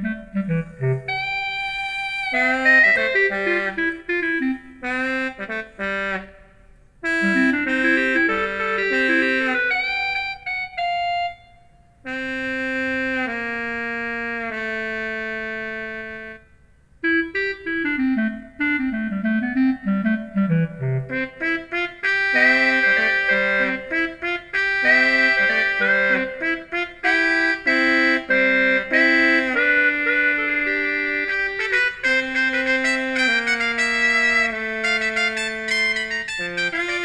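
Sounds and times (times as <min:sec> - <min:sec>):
electronic keyboard playing: 0:07.1 - 0:11.5.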